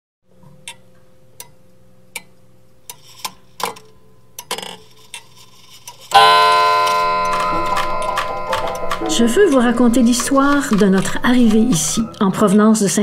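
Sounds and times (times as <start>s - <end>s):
wall clock ticking: 6.1s - 12.2s
irregular clicks and knocks: 6.2s - 12.0s.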